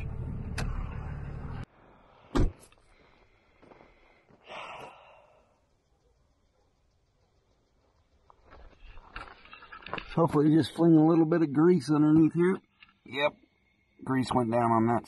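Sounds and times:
truck cab driving noise: 0.0 - 1.7.

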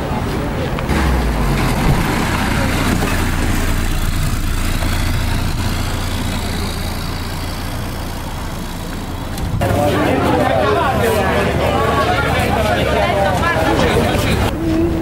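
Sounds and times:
jeep engine driving off: 0.6 - 12.4.

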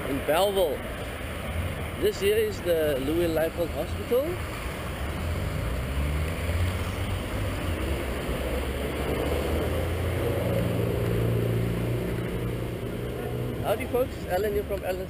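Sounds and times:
car engines running: 0.0 - 15.0
vehicle pulling away: 0.0 - 15.0.

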